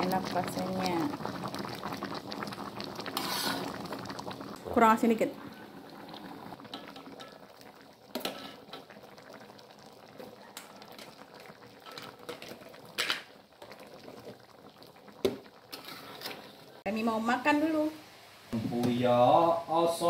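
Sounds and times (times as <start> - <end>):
curry bubbling in a wok: 0.0 - 16.9
ladle stirring: 3.1 - 3.9, 15.1 - 16.8.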